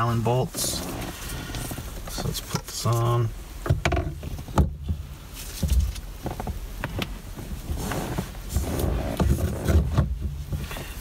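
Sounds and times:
rustling handling noise: 0.0 - 11.0.

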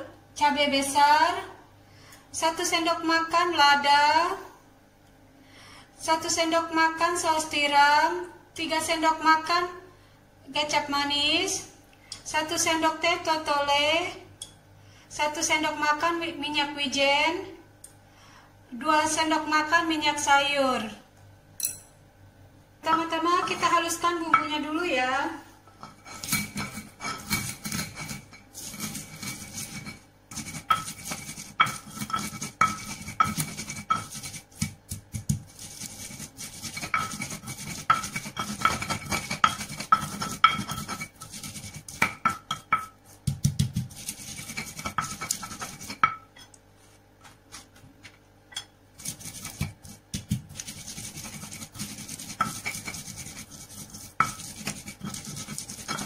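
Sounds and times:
stone pestle grinding in mortar: 22.9 - 24.7, 25.7 - 46.3, 48.6 - 56.0.

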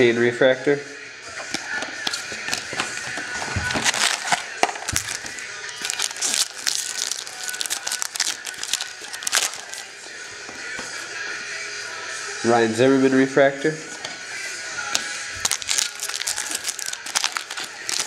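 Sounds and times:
foil wrapper crinkling and tearing: 3.7 - 9.9, 15.4 - 18.0.

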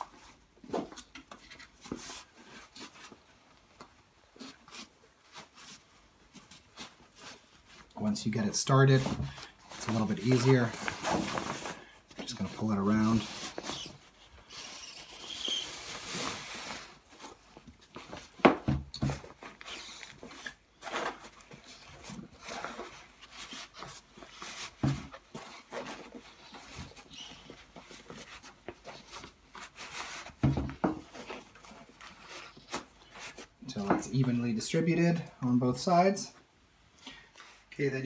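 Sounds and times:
fabric rustling: 1.7 - 18.4.

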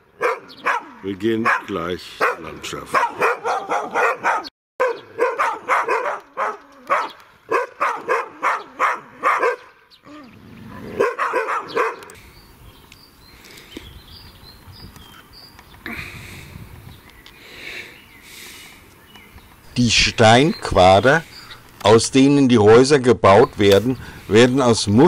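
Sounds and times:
dog barking rapidly: 0.2 - 9.8, 10.9 - 12.1.

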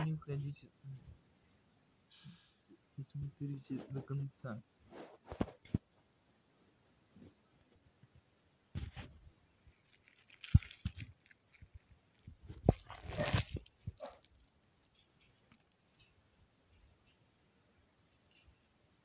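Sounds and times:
plastic parcel crinkling and tearing: 9.6 - 15.8.

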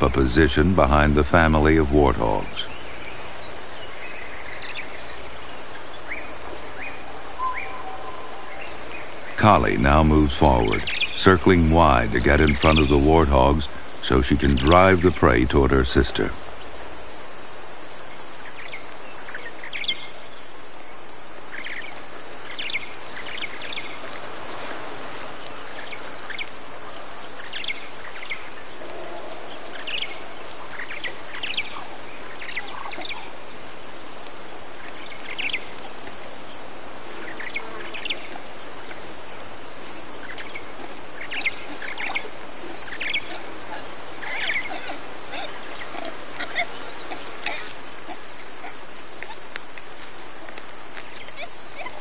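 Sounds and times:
background hiss: 0.0 - 52.0
high insect buzz: 2.4 - 51.3
bird chirps: 6.8 - 16.4.

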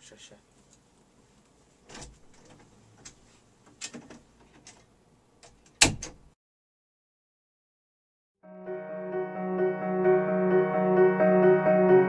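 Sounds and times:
door clicks and knocks: 5.4 - 6.3
door shutting with thump: 5.8 - 6.2.

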